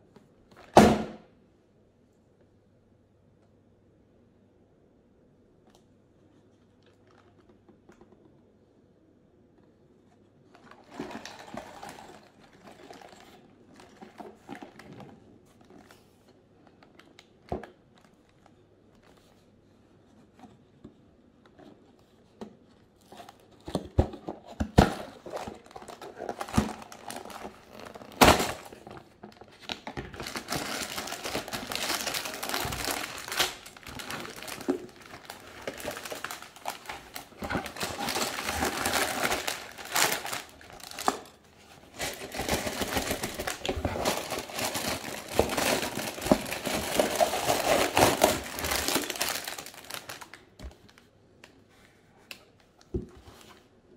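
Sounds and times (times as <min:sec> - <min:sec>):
plastic bags crinkling: 0:10.6 - 0:15.9, 0:24.8 - 0:51.0.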